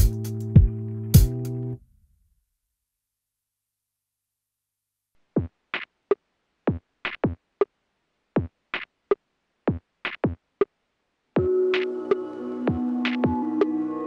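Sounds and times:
drum machine beat: 0.0s - 1.6s, 5.2s - 13.9s.

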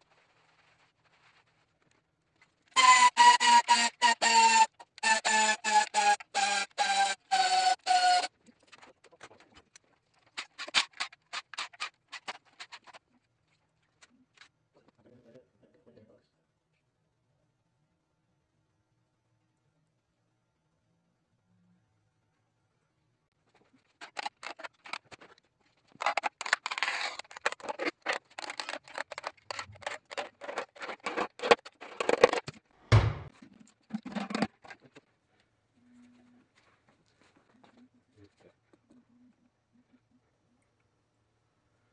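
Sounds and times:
heavy knock: 32.9s - 33.3s.

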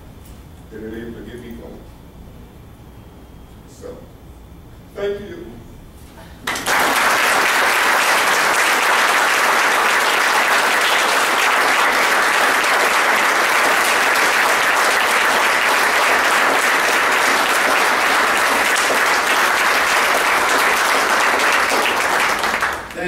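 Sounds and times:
people applauding: 6.4s - 23.0s.

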